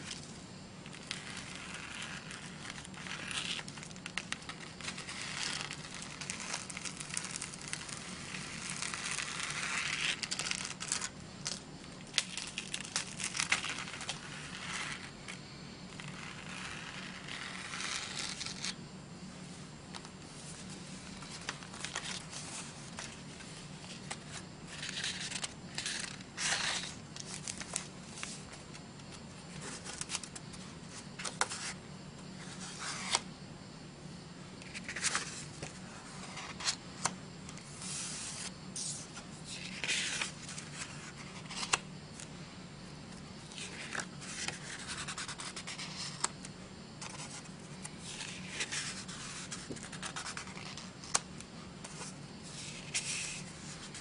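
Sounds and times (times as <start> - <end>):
faint low hum: 0.0 - 54.0
cardstock sheets rustling: 19.9 - 28.9, 29.5 - 31.8, 34.6 - 41.9, 43.5 - 46.4, 47.0 - 54.0.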